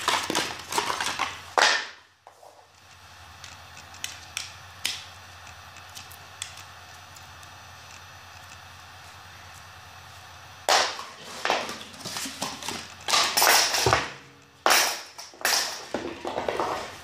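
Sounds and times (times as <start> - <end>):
cardboard scraping and rustling: 11.0 - 12.9.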